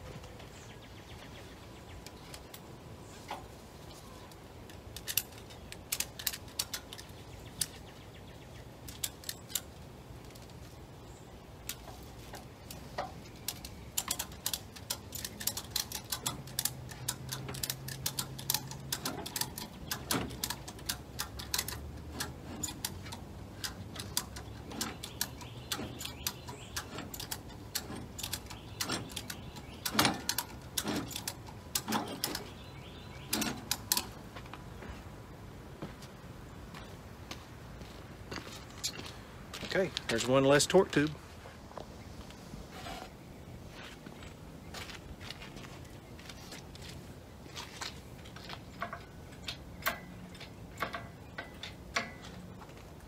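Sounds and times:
ratchet strap clicking: 4.7s - 7.8s, 13.4s - 32.6s.

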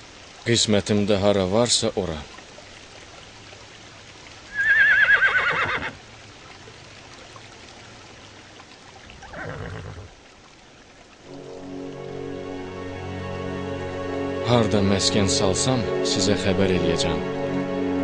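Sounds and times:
horse whinnying: 4.5s - 6.0s, 9.2s - 10.1s.

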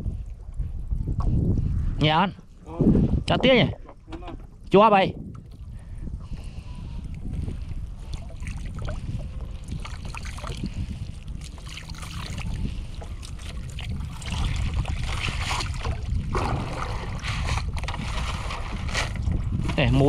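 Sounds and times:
low wind rumble on microphone: 0.0s - 20.0s
net against boat side: 2.3s - 20.0s
water splashing and dripping: 8.0s - 17.0s.

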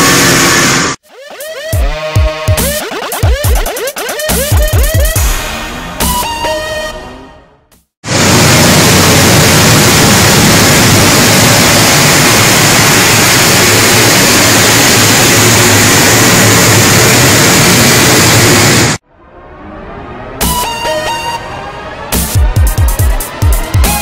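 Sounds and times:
car engine on dynamometer: 0.0s - 1.0s, 8.1s - 19.0s.

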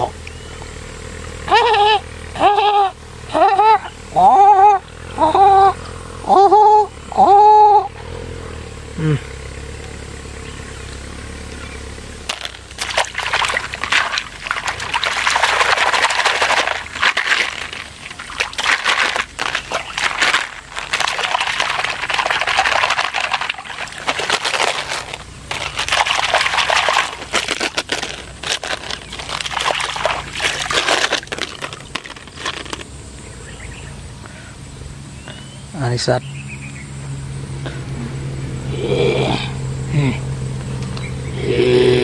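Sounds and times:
water sloshing and splashing: 12.3s - 32.9s.

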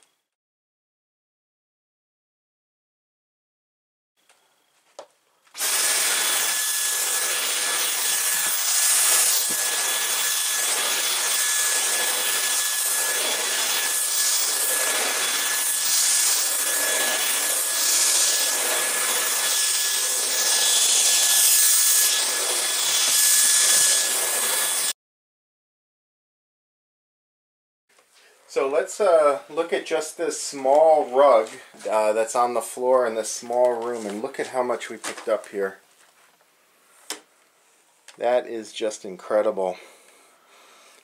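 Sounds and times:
vacuum cleaner running: 5.5s - 24.9s.

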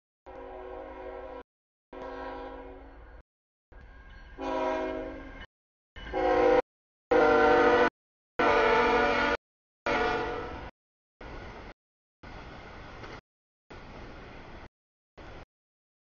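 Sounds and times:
train air horn blasts: 0.3s - 3.0s, 4.4s - 5.4s, 6.0s - 10.7s
low train rumble: 2.0s - 15.5s.

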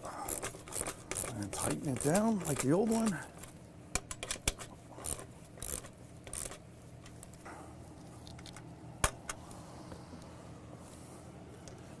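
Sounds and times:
hand tools scraping rasps: 0.2s - 3.2s
sharp metallic clicks: 0.3s - 6.6s.

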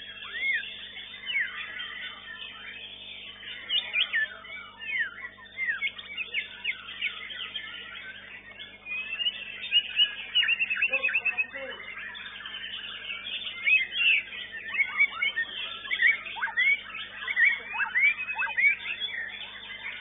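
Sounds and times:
bird singing whistled notes: 0.0s - 20.0s
chorus of songbirds: 0.0s - 20.0s.

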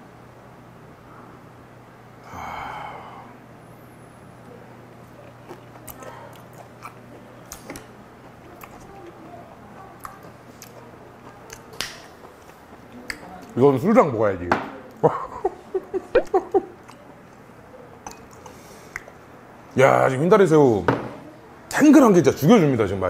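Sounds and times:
wet chewing mouth clicks: 5.1s - 9.2s.

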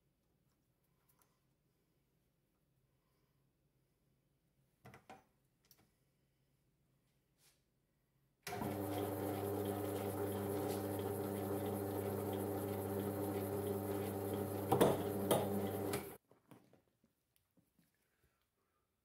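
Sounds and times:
lathe motor hum: 8.5s - 16.2s.

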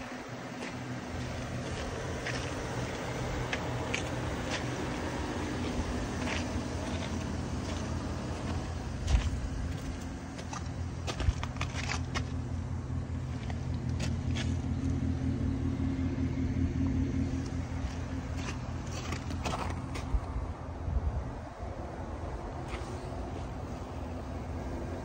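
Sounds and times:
pickup engine idling: 0.0s - 25.0s.

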